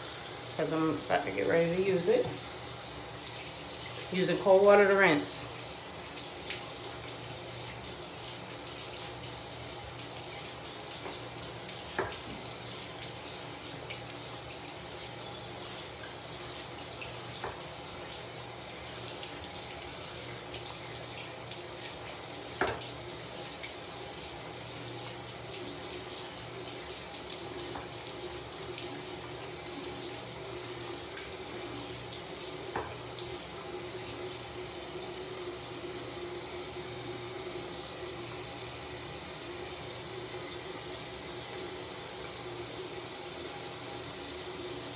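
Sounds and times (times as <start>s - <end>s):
tap running into sink: 10.4s - 13.2s, 17.3s - 17.8s, 22.5s - 23.0s, 32.6s - 33.4s.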